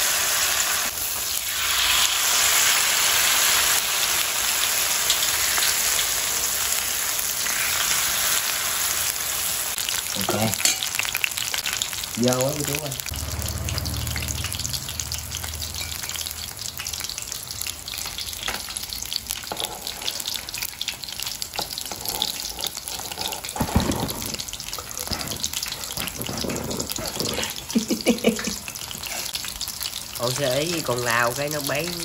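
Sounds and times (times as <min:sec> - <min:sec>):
fritters sizzling in hot oil: 0:00.0 - 0:32.0.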